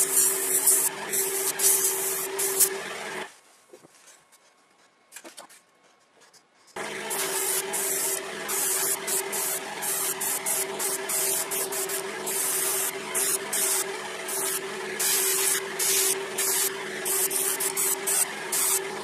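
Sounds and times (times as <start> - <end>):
airbrush spraying hiss: 0.0 - 2.7, 7.1 - 18.8
air compressor humming: 0.0 - 3.3, 6.8 - 19.0.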